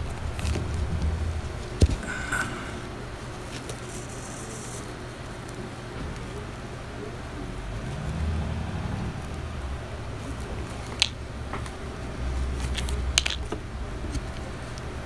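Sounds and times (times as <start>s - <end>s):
low rumble: 0.0s - 3.6s, 7.4s - 12.6s.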